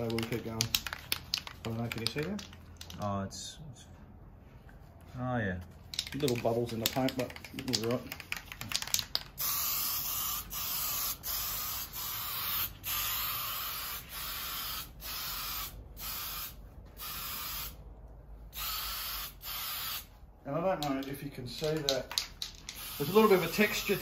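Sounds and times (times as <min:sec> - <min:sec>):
spray can clicks: 0:00.0 - 0:03.0, 0:05.9 - 0:09.8, 0:20.8 - 0:23.2
spray can hissing: 0:05.9 - 0:17.8, 0:18.5 - 0:20.2, 0:21.7 - 0:24.0.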